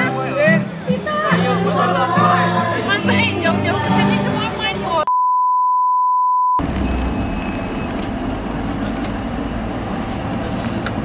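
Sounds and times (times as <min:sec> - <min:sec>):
bus rumble from inside: 0:00.0 - 0:05.1, 0:06.6 - 0:11.0
steady high test tone beep: 0:05.1 - 0:06.6.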